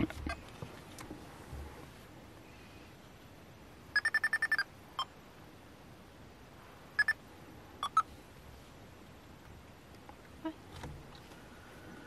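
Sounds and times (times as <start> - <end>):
electronic sensor beeping: 4.0 - 5.1, 7.0 - 7.2, 7.8 - 8.1.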